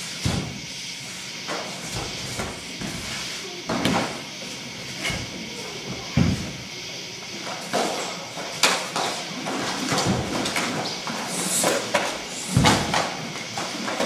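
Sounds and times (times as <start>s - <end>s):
footwork thumps on floor: 0.2s - 0.6s, 5.0s - 6.6s, 7.7s - 14.0s.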